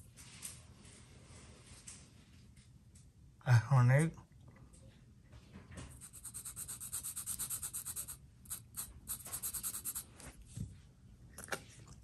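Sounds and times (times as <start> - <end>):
marker scratching on metal: 6.0 - 10.1.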